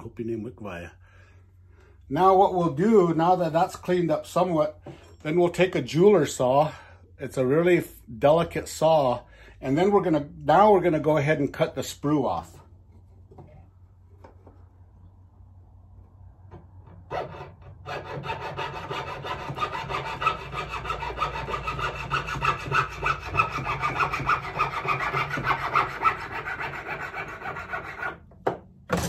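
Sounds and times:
jeweler's saw cutting metal: 17.1s - 28.2s.

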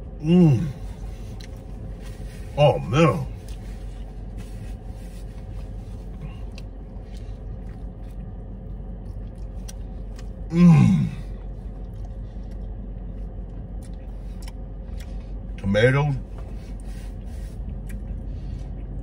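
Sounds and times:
car cabin hum: 0.0s - 19.0s
man humming mmm: 0.2s - 0.9s, 10.5s - 11.2s
chewing clicks: 11.8s - 15.1s.

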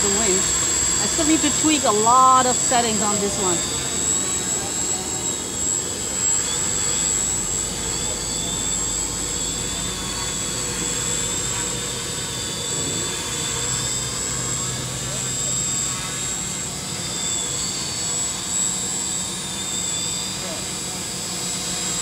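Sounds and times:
quadcopter whirring drone: 0.0s - 22.0s.

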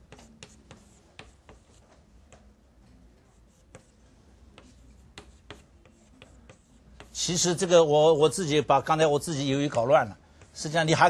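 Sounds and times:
chalk tapping on blackboard: 0.0s - 2.5s, 3.3s - 7.5s.

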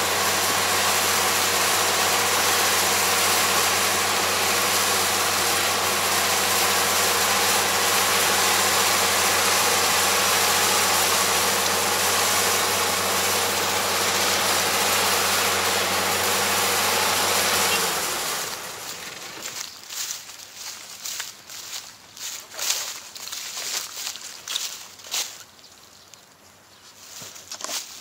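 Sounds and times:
combine harvester engine running: 0.0s - 20.7s
machinery hiss: 0.0s - 20.7s.

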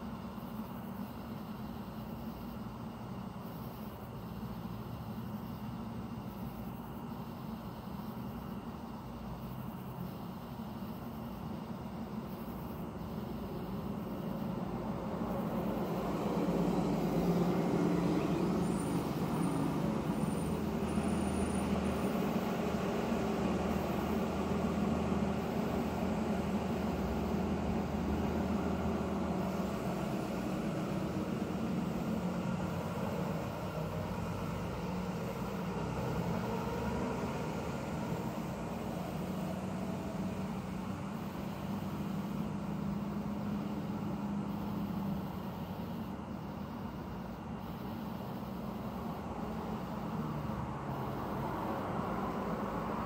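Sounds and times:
motor vehicle rumble: 11.4s - 53.0s.

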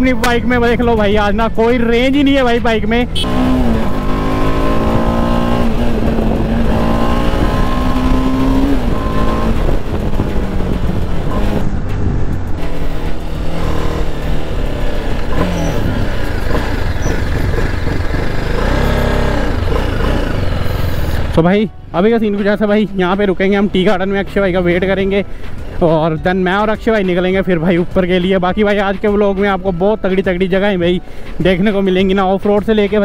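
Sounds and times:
motorcycle engine running: 0.0s - 21.6s
wind rushing: 3.0s - 21.3s.

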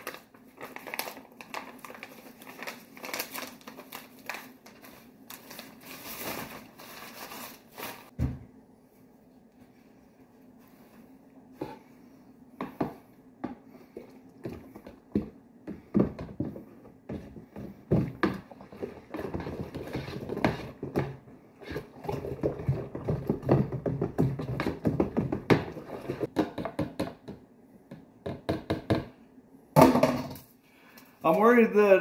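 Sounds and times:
stirring rod knocking in plastic jug: 14.4s - 29.1s.

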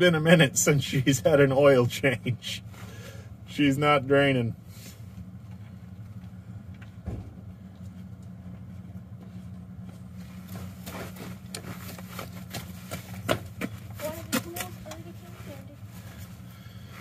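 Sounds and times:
engine idling: 0.0s - 17.0s
dull thump: 7.0s - 7.4s.

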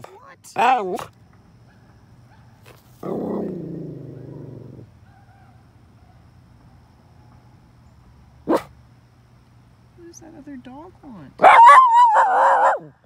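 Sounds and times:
distant dogs howling: 3.3s - 6.4s, 11.4s - 13.0s
dog barking: 8.5s - 8.7s, 11.4s - 12.9s
dog howling: 11.4s - 12.9s.

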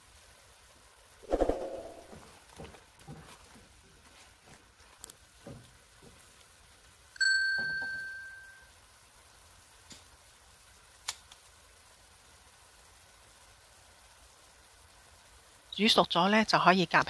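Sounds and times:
notification bell ding: 7.2s - 8.6s.

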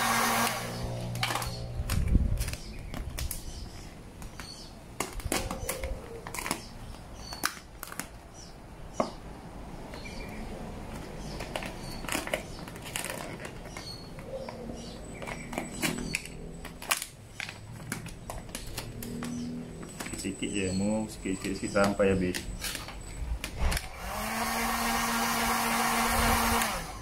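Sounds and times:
plastic film crinkling: 0.8s - 8.4s, 10.9s - 23.9s.

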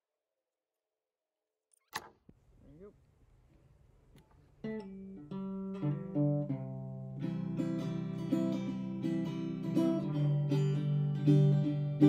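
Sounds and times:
acoustic guitar picking and strumming: 4.6s - 12.0s.

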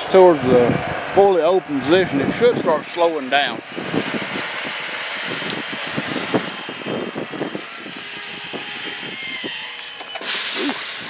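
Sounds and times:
gate opener motor running: 3.0s - 11.0s
loud rustle: 3.8s - 11.0s.

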